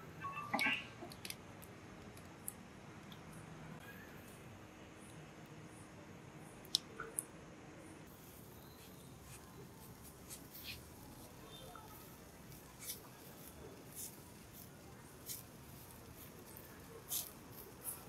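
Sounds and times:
charcoal crackling and popping: 1.0s - 3.3s, 8.1s - 18.0s
faint steady hiss: 1.1s - 18.0s.

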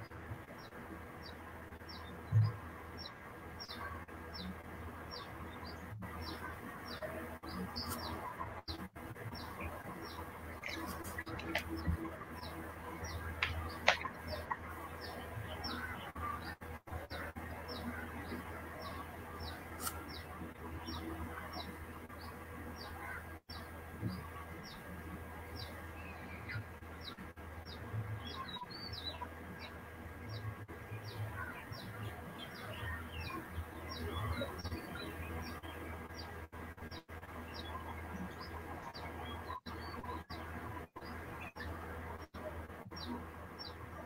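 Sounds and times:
steady low hum: 0.0s - 44.0s
small bird chirping: 0.6s - 24.9s, 25.5s - 44.0s.

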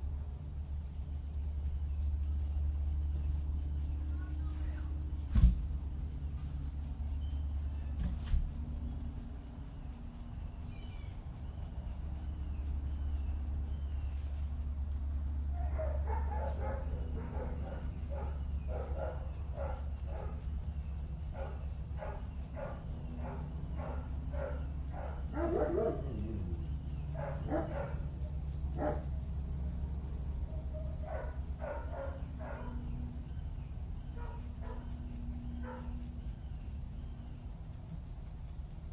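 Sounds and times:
steady low hum: 0.0s - 38.9s
dogs barking: 15.5s - 29.2s, 30.4s - 37.0s.

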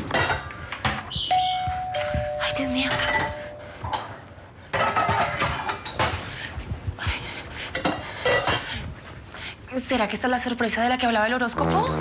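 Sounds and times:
metal pots and pans clanking: 0.0s - 1.5s, 4.7s - 6.2s.

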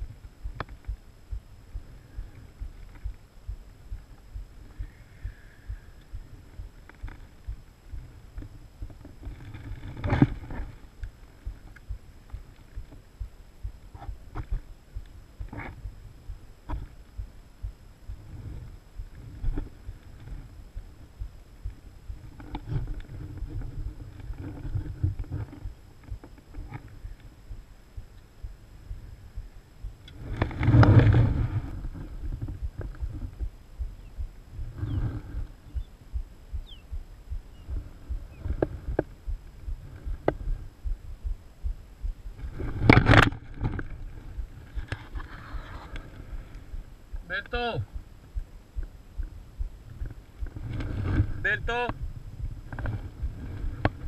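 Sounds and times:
camera handling rumble and rustle: 6.8s - 13.0s, 15.4s - 15.9s, 22.2s - 27.3s, 30.1s - 33.5s, 37.6s - 39.2s, 42.4s - 46.7s, 49.8s - 54.0s.

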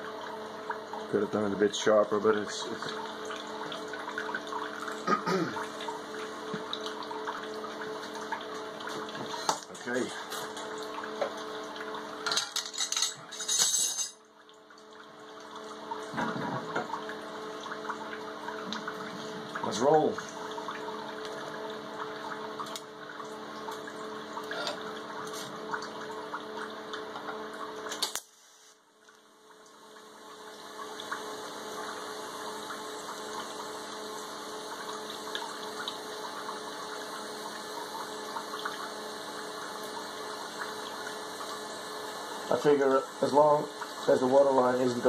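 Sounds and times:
water pump hum and trickle: 0.0s - 45.0s
welding arc hiss and crackle: 27.9s - 28.9s.

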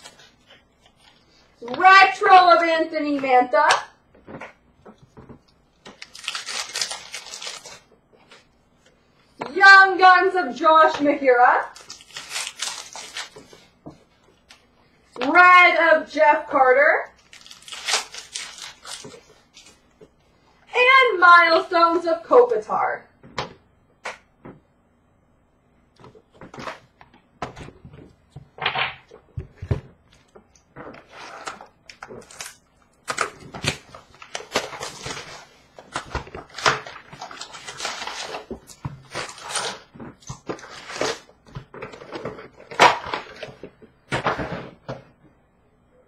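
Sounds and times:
wrappers rustling and crinkling: 4.9s - 8.5s, 11.7s - 13.7s, 17.2s - 19.8s, 33.2s - 43.6s.

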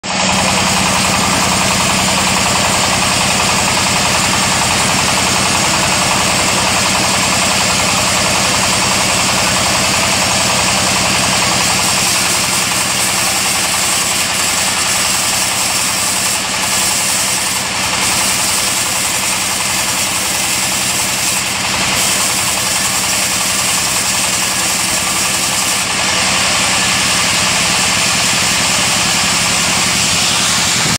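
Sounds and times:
band saw cutting wood: 0.0s - 30.9s
diesel engine running: 0.0s - 30.9s.

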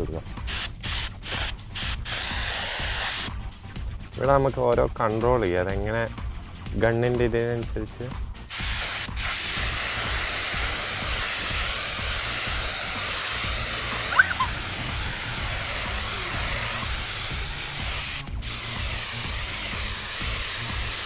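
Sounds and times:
spray gun hissing: 0.5s - 3.3s, 8.5s - 21.0s
short chirp: 14.1s - 14.5s.

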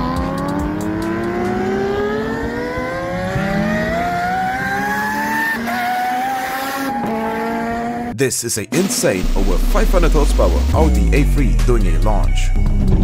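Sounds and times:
car engine revving: 0.0s - 8.2s.

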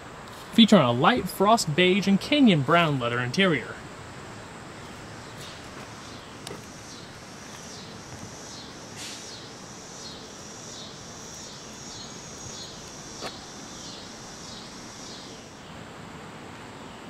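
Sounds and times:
pulsing high insect buzz: 3.7s - 15.7s.

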